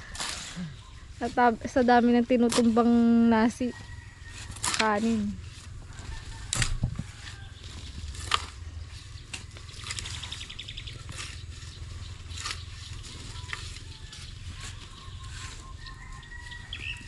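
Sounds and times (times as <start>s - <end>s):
shovels scraping into soil: 0.0s - 17.0s
low rumble: 5.3s - 17.0s.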